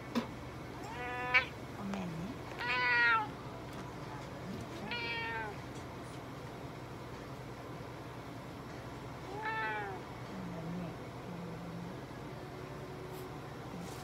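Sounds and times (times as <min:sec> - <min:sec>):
cat meowing: 0:00.8 - 0:01.6, 0:02.6 - 0:03.3, 0:04.8 - 0:05.6, 0:09.3 - 0:10.0.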